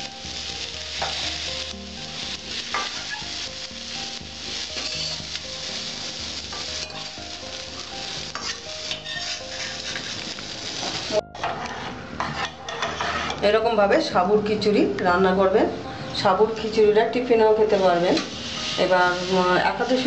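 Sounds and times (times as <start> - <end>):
vegetables sizzling in oil: 0.0 - 11.2, 16.2 - 20.0
steel spoon scraping a pan: 2.7 - 3.4, 4.8 - 5.2, 8.3 - 10.3, 11.4 - 13.4, 17.8 - 20.0.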